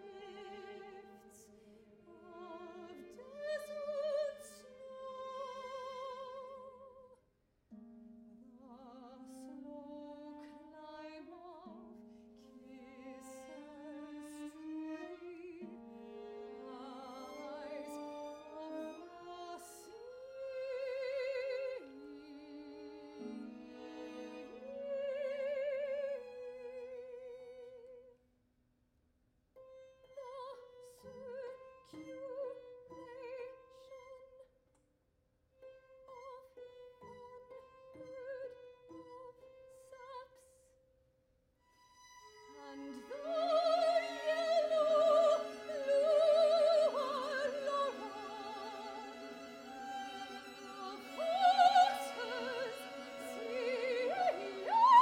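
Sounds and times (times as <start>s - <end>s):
string orchestra and harp: 0.0s - 6.9s, 8.6s - 27.9s, 29.9s - 34.4s, 36.0s - 40.4s, 41.8s - 55.0s
operatic soprano singing: 0.0s - 7.1s, 8.6s - 27.9s, 42.5s - 55.0s.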